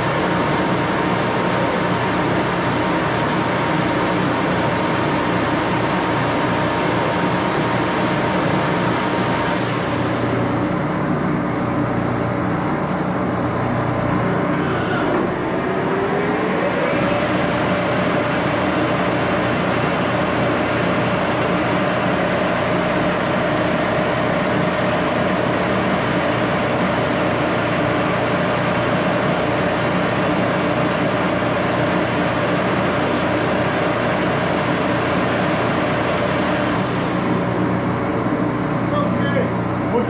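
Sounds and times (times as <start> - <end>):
lathe gears whining: 0.0 - 40.0
lathe machine noise: 0.0 - 40.0.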